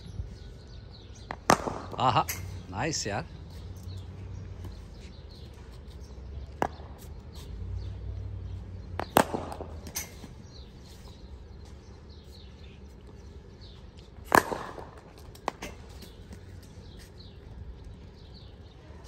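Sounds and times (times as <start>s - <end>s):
cricket bat striking ball: 1.3s - 2.1s, 9.0s - 9.8s, 14.3s - 15.0s.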